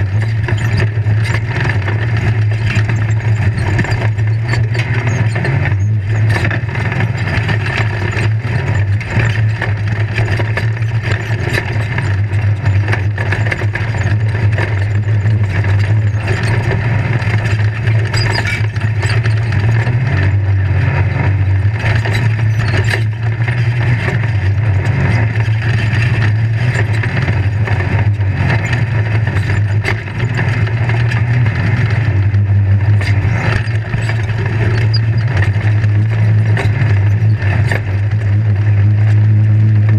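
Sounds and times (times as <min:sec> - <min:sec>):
chassis rattling and knocking: 0:00.0 - 0:39.9
low engine note: 0:00.0 - 0:39.9.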